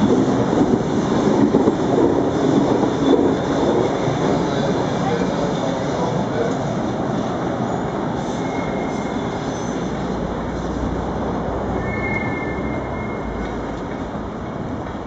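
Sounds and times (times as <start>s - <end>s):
train rumbling on rails: 0.0s - 15.0s
train wheels squealing: 7.6s - 10.2s, 11.6s - 13.7s.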